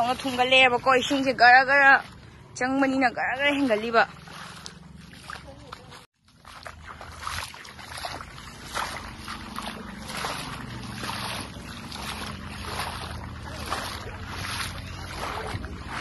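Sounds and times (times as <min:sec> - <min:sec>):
footsteps splashing in shallow water: 0:00.0 - 0:16.0.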